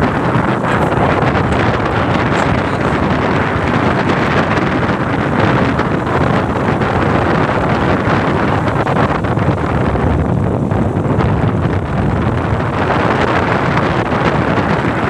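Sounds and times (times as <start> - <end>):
vehicle running noise: 0.0 - 9.9
wind buffeting microphone: 0.0 - 15.0.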